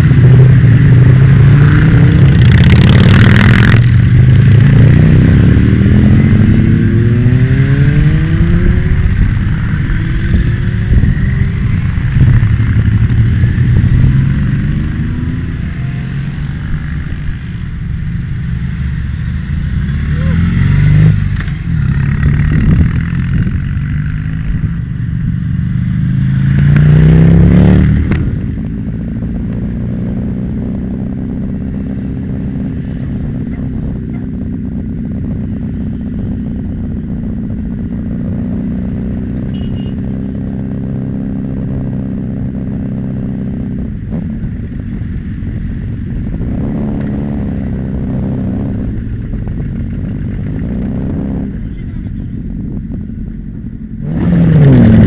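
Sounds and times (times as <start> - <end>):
motorcycle engine cruising drone: 0.0 - 55.0
motorcycle engine revving: 0.0 - 55.0.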